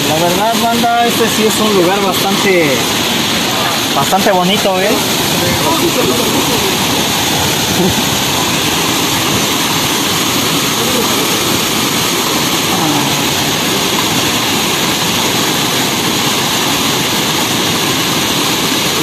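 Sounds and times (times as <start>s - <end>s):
rush of falling water: 0.0s - 19.0s
faint voices: 10.5s - 11.8s, 12.6s - 13.6s.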